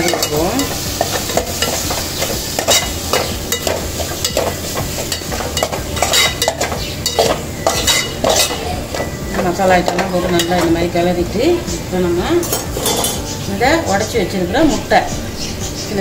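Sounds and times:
spatula scraping metal pot: 0.0s - 10.8s, 12.4s - 14.0s
hot oil sizzling: 0.0s - 16.0s.

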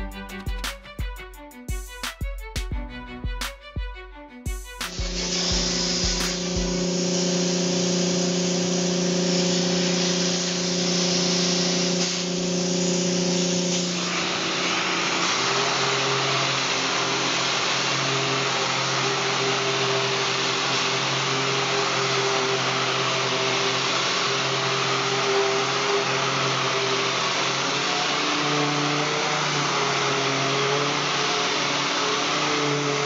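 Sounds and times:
orbital sander whirring hiss: 4.4s - 33.0s.

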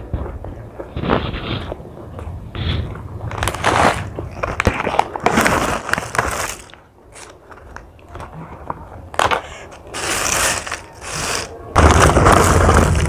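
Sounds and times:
plastic snack bag crinkling: 3.2s - 8.3s, 9.1s - 13.0s.

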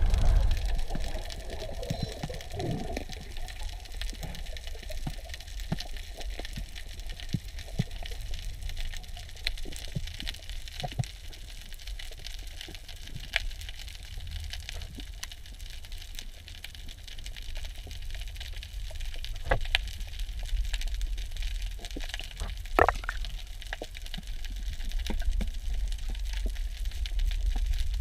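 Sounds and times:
low muffled underwater rumble: 0.0s - 5.2s, 22.3s - 23.6s
crackle of small clicks: 0.0s - 28.0s
underwater knocks: 22.8s - 23.3s.

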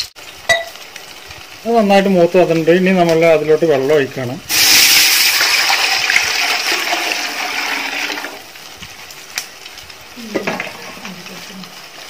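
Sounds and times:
water pouring into metal pot: 4.5s - 8.6s.

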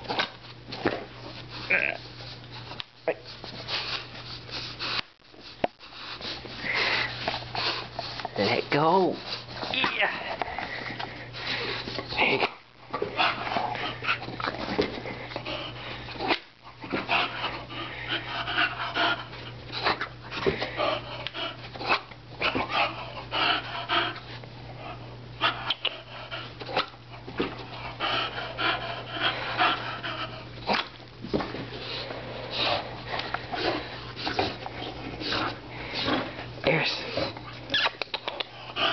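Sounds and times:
dog breathing hard: 3.4s - 8.4s, 10.3s - 12.2s, 13.1s - 21.8s, 22.6s - 30.7s, 31.6s - 37.5s, 38.4s - 38.9s.

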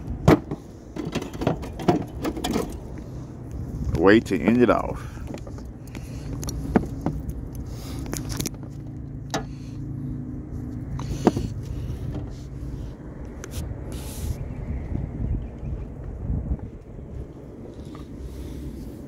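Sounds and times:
sharp clicks and knocks: 0.2s - 3.0s.

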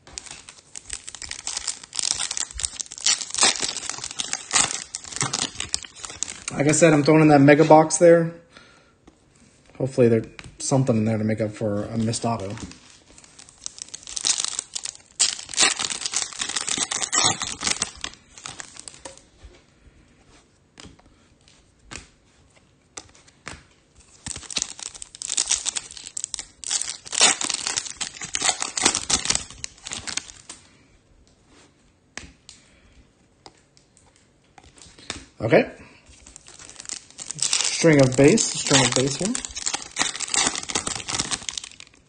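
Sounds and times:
packaging crinkling: 0.0s - 7.8s, 11.9s - 19.3s, 24.0s - 30.6s, 36.1s - 42.0s
wrappers ripping and crackling: 0.0s - 7.9s, 11.9s - 19.4s, 23.0s - 30.6s, 36.1s - 42.0s.

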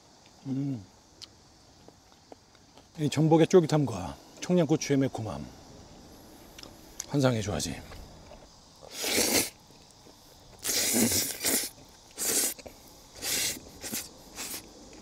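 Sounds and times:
person slurping noodles: 8.9s - 9.5s, 10.6s - 12.6s.

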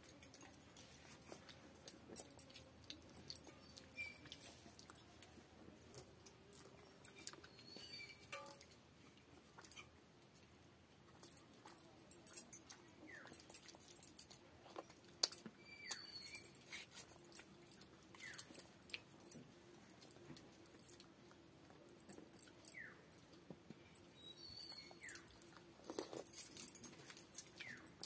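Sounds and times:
bangles clinking: 0.0s - 5.3s, 6.0s - 8.8s, 11.2s - 14.5s, 15.2s - 19.4s, 22.0s - 28.0s
chewing and lip smacks: 0.0s - 10.5s, 11.1s - 28.0s.

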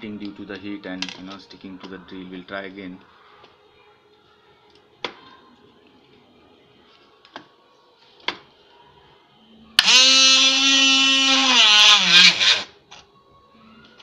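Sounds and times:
small electric motor whining: 9.8s - 12.7s.

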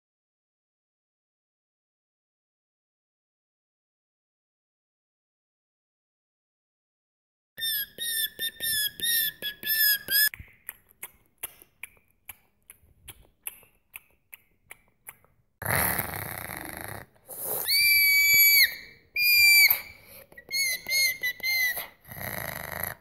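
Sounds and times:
high wobbling squeaks: 7.6s - 10.3s
high steady whistle: 17.6s - 21.8s.

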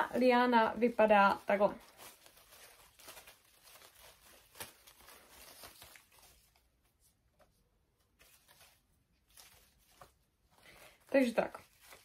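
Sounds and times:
artificial leaves rustling: 0.0s - 12.0s.

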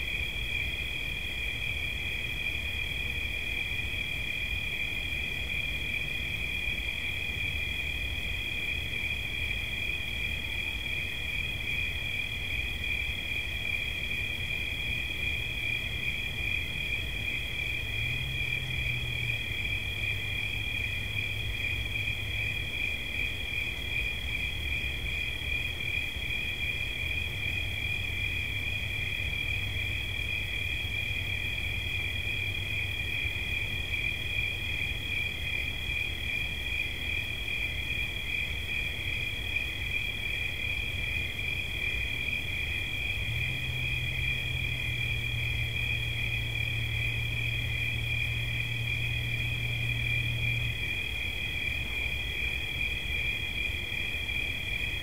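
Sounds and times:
cricket trilling: 0.0s - 55.0s.

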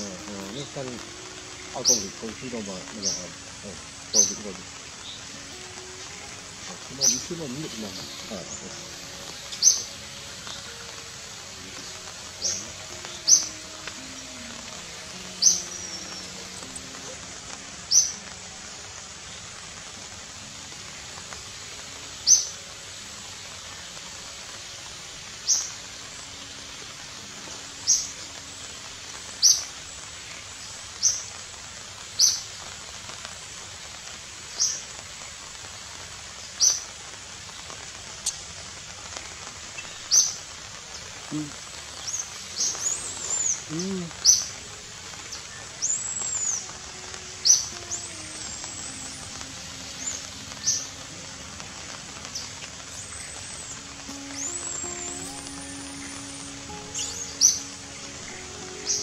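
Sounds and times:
bird chirping: 0.0s - 18.4s, 39.7s - 59.0s
steady background hiss: 0.0s - 59.0s.

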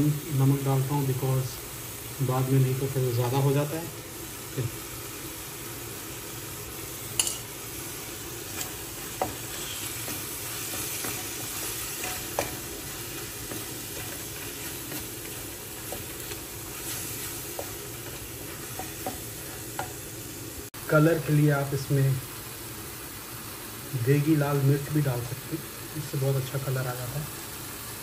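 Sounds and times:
food sizzling in a pan: 0.0s - 28.0s
wooden spatula stirring: 8.4s - 20.0s
spatula knocking on pan: 8.6s - 12.8s.

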